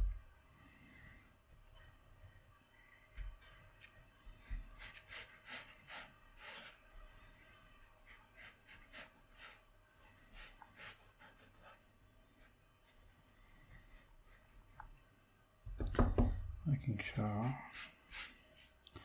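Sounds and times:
brush strokes on paper: 0.6 - 14.8.

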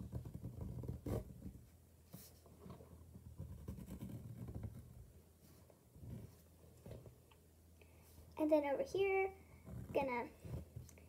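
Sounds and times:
hand rubbing and bumping: 0.0 - 7.3
marker scratching on paper: 3.5 - 4.8.

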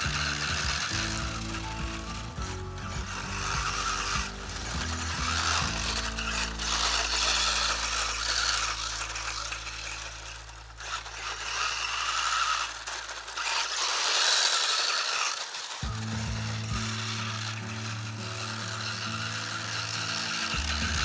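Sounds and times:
background music: 0.0 - 8.8, 15.8 - 21.0
electric rc car running: 0.0 - 21.0
tyres scraping on dirt: 0.0 - 21.0.

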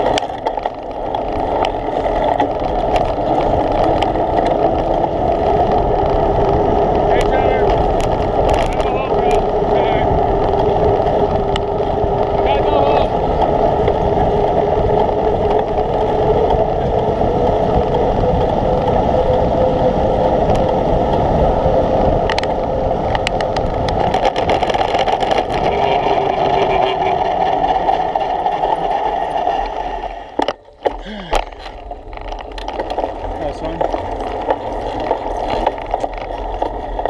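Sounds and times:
wind rush: 0.0 - 30.4
constant hum: 0.0 - 37.0
road noise: 0.0 - 37.0
sharp rattles: 22.3 - 37.0.

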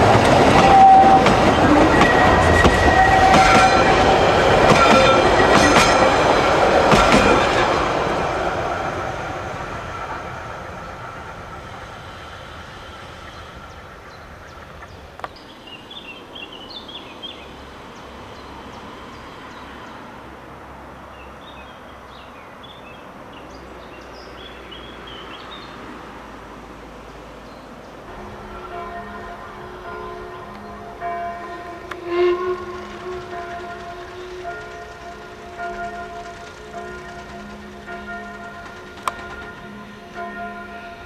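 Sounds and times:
train wheel clatter: 0.0 - 15.4, 28.2 - 40.4
steady outdoor hiss: 3.7 - 41.0.

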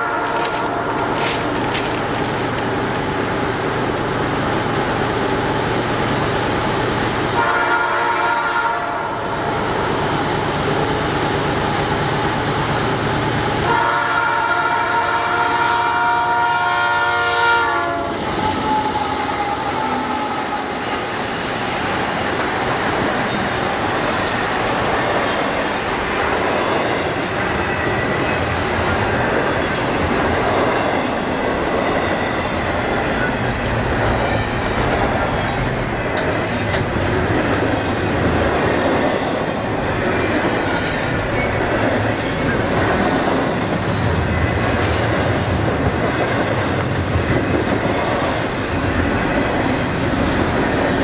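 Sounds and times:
train rumbling: 0.0 - 51.0
wheel noise on rails: 0.0 - 51.0
locomotive horn blasts: 7.4 - 9.2, 13.6 - 20.5.

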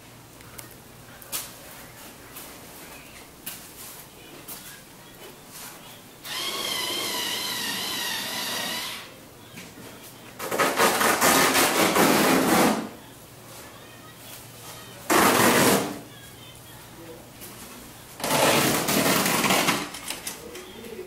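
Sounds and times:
power tool whining: 6.2 - 9.1.

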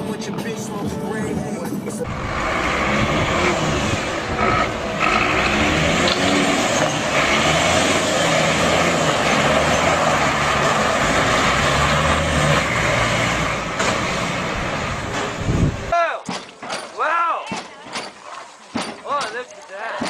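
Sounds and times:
steady noisy rush: 0.0 - 9.2
diesel engine revving: 2.0 - 16.0.

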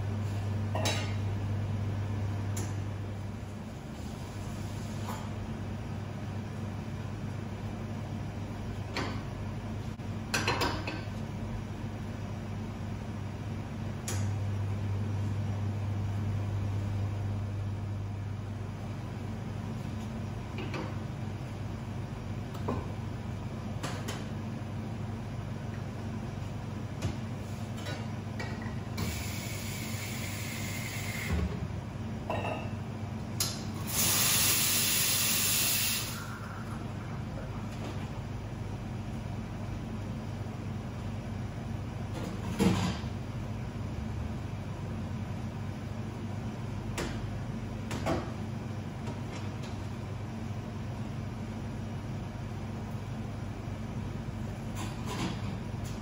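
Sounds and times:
low machine hum: 0.0 - 56.0
espresso machine pump humming: 29.0 - 31.5, 33.8 - 38.0.

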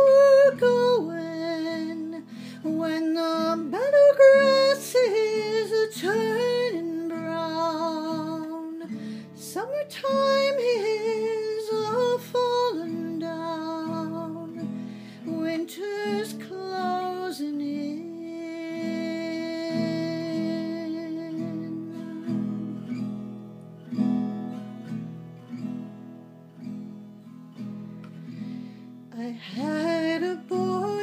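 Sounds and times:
woman singing: 0.0 - 22.8, 29.1 - 31.0
acoustic guitar strumming: 0.0 - 31.0.

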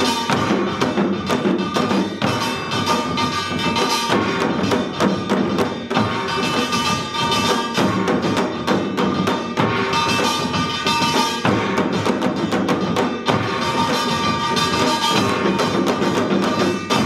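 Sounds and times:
gongs ringing: 0.0 - 5.2, 13.2 - 17.0
drums struck in dense strokes: 0.0 - 17.0.

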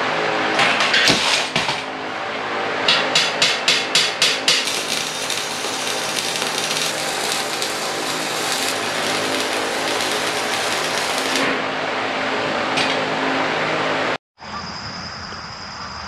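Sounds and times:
welding arc crackling and sizzling: 4.2 - 11.6.

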